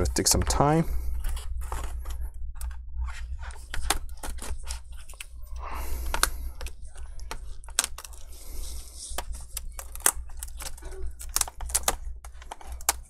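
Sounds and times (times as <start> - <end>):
low steady hum: 0.0 - 13.0
plastic bezel prying clicks and crackles: 6.1 - 8.2, 9.1 - 13.0.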